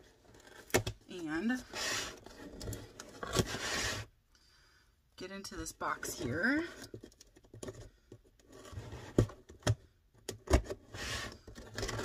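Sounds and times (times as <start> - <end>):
cardboard scraping rustle: 0.0 - 4.1, 8.4 - 9.4, 10.7 - 12.0.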